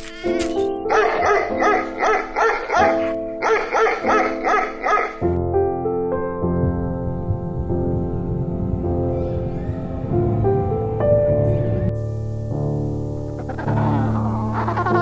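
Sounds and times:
gentle background music: 0.0 - 15.0
dog barking: 0.9 - 5.3.

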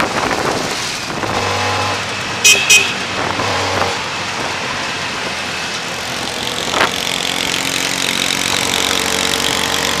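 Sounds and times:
small engine running: 6.0 - 10.0.

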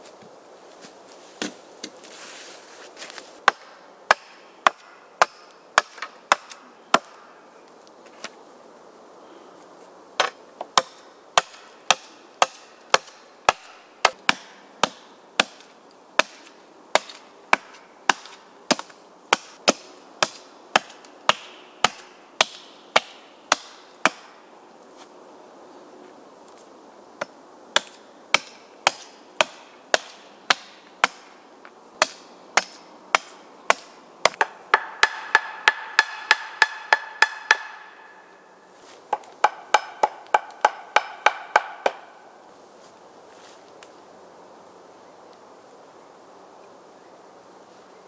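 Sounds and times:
hatchet chopping wood: 3.4 - 7.2, 10.2 - 24.4, 27.2 - 31.3, 32.0 - 37.9, 39.1 - 42.1.

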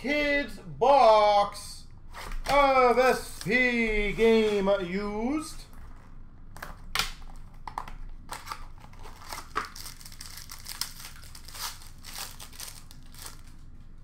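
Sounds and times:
wrapper and cardboard tearing: 8.3 - 13.7.

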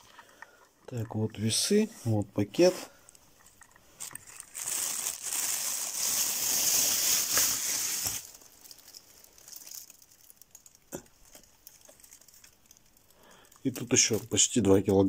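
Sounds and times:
plastic bag crinkling: 3.6 - 14.8.

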